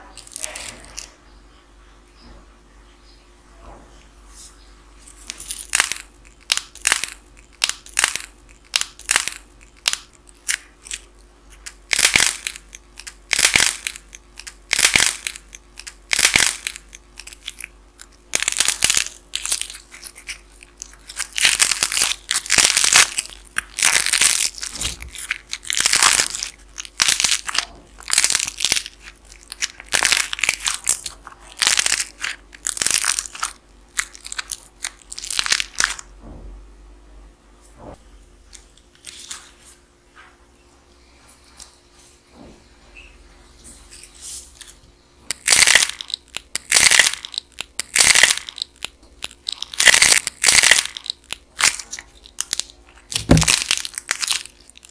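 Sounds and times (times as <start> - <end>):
clay crust crackling and crunching: 0.0 - 1.2, 5.0 - 36.1, 43.8 - 54.9.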